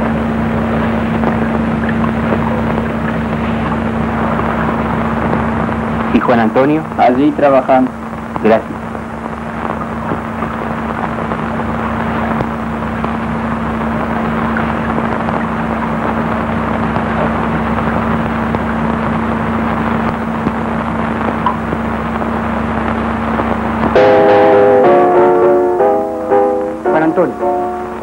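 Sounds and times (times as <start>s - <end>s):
constant low hum: 0.0s - 28.0s
steady rushing noise: 0.0s - 28.0s.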